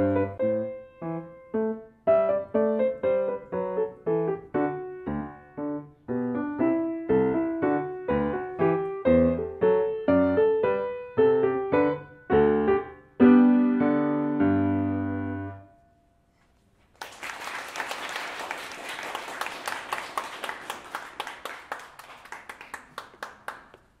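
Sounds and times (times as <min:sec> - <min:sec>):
grand piano chords: 0:00.0 - 0:16.2
audience clapping: 0:16.8 - 0:24.0.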